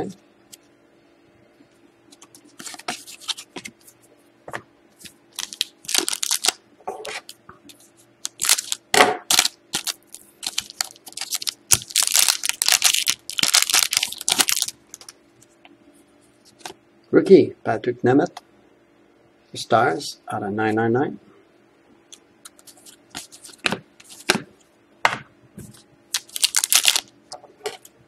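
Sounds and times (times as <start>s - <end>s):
foil wrapper crinkling and tearing: 5.4s - 7.4s, 8.2s - 15.1s, 26.1s - 27.1s.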